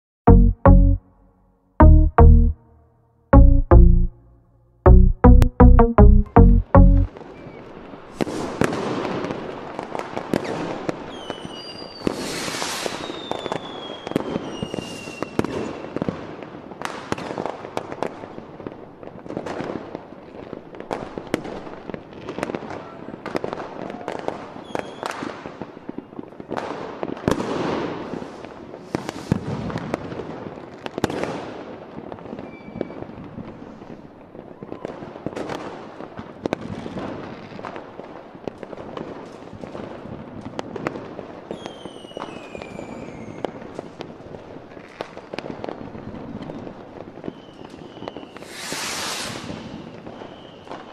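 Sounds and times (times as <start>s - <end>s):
falling firework whistles: 10.3s - 16.2s, 24.1s - 25.3s, 27.8s - 30.0s, 32.3s - 33.3s, 41.5s - 43.8s, 47.2s - 50.9s
firework shell bursts and crackling: 27.4s - 30.1s, 48.3s - 50.1s.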